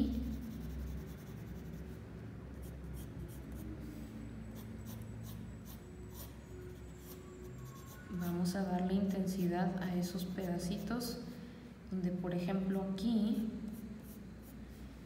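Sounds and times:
pencil scratching on paper: 0:00.2 - 0:02.0, 0:04.6 - 0:09.5, 0:13.7 - 0:14.6.

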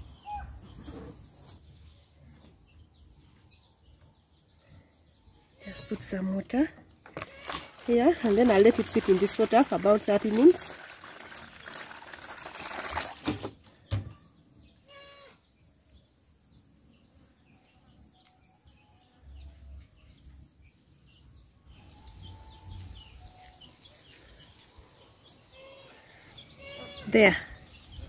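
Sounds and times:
water pouring into plastic basin: 0:07.1 - 0:13.6.

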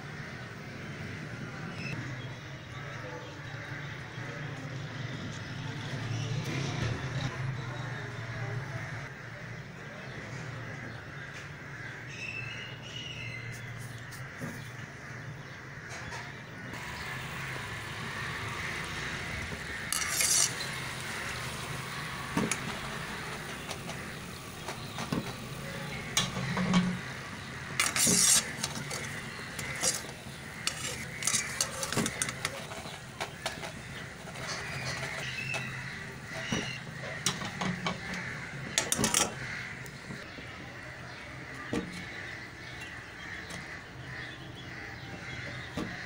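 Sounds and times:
steady background hum: 0:16.6 - 0:46.0
utensils clinking against dishes: 0:19.9 - 0:21.6, 0:27.8 - 0:33.7.

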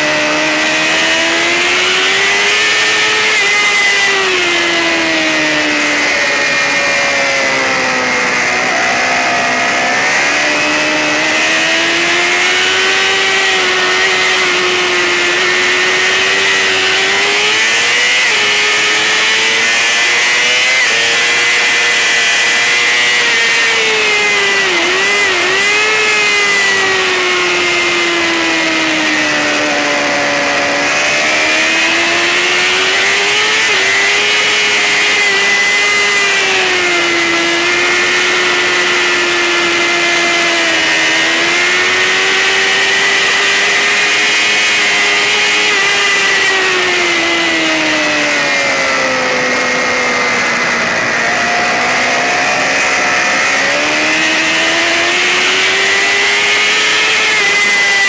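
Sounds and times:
sportbike engine at high revs: 0:00.0 - 0:58.0.

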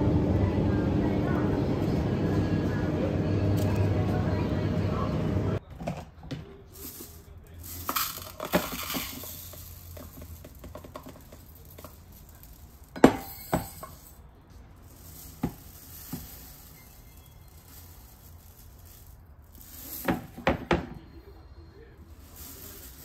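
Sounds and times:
rice pouring into glass cup: 0:07.0 - 0:14.2, 0:14.8 - 0:20.6, 0:22.1 - 0:23.0
plastic clinking against glass: 0:07.7 - 0:14.1.

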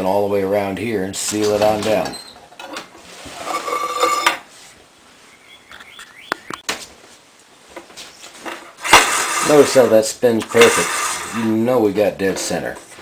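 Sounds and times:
tin can scraping and squeaking: 0:01.3 - 0:04.4, 0:08.7 - 0:12.7.

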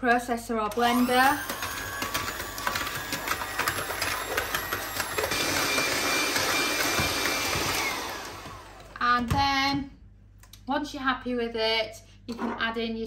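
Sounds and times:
electric hand mixer whining: 0:00.7 - 0:09.1.

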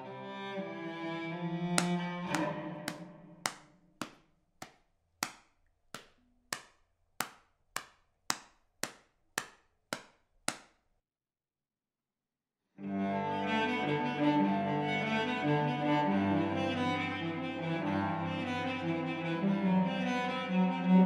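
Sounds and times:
cello note: 0:01.5 - 0:03.4.

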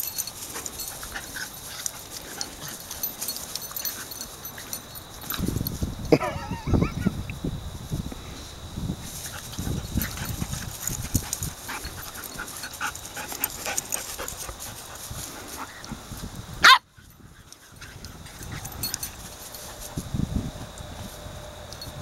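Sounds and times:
dogs panting: 0:00.0 - 0:05.6, 0:09.2 - 0:16.2, 0:17.0 - 0:19.9
dogs scuffling: 0:00.0 - 0:05.9, 0:09.0 - 0:15.9.

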